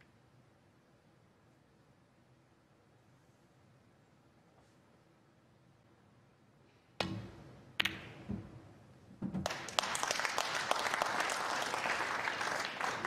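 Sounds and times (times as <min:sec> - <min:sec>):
ball dropping into pocket: 0:07.0 - 0:08.6
balls knocking on cushion: 0:09.2 - 0:09.5
audience applause: 0:09.5 - 0:13.0.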